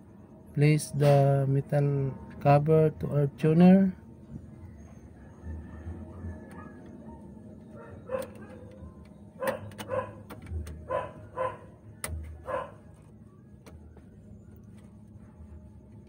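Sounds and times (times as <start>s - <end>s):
dog barking: 6.6s - 8.6s, 9.4s - 11.8s, 12.4s - 12.8s.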